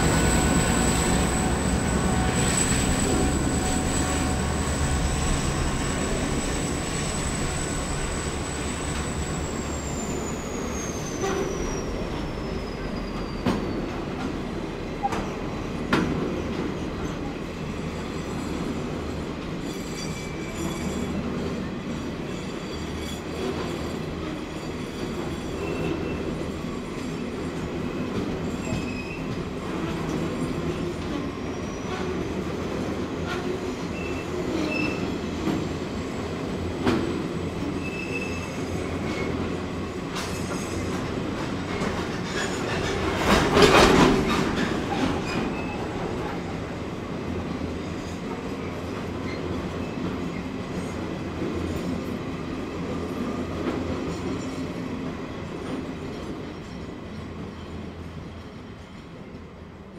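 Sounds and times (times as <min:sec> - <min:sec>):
high wheel squeals: 0:00.0 - 0:14.1, 0:19.6 - 0:26.9, 0:27.9 - 0:29.4, 0:33.8 - 0:36.3, 0:37.1 - 0:41.2, 0:41.8 - 0:46.6
train rumbling on track: 0:00.0 - 0:59.9.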